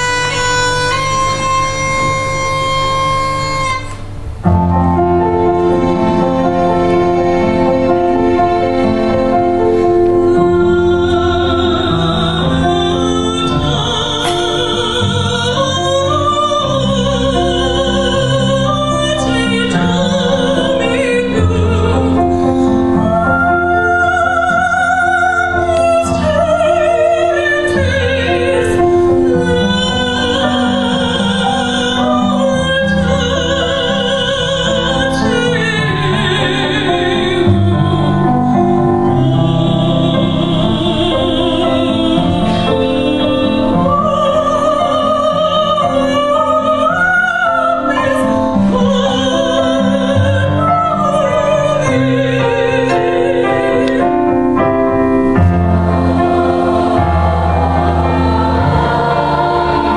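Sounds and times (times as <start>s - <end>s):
string accompaniment: 0.0s - 59.9s
woman singing operatically: 10.1s - 54.6s.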